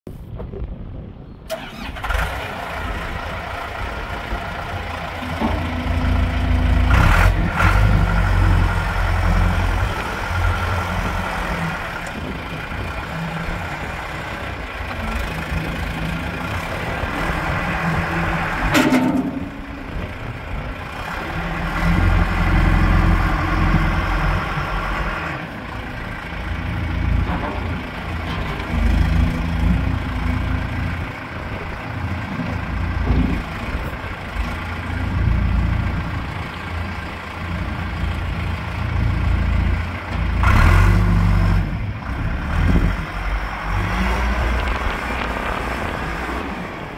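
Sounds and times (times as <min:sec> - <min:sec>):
diesel engine running: 0:01.5 - 0:46.9.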